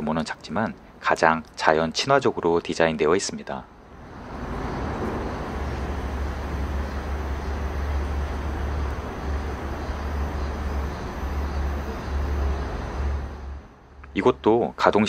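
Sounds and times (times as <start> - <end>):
even hiss: 3.9 - 14.7.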